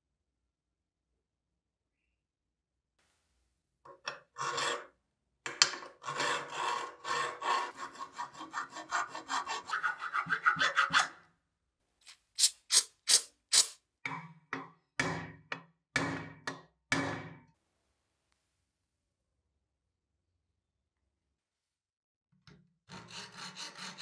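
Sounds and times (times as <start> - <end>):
hand file rasping on iron: 6.0 - 11.2, 22.9 - 24.0.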